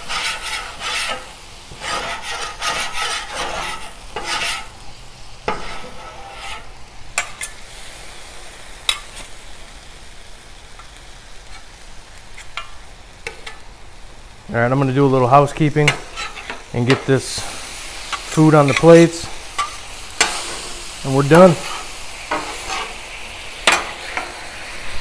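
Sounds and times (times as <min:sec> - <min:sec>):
metal spatulas scraping griddle: 0:00.0 - 0:04.8, 0:05.4 - 0:07.6, 0:15.8 - 0:24.5
sauce sizzling on griddle: 0:00.0 - 0:25.0.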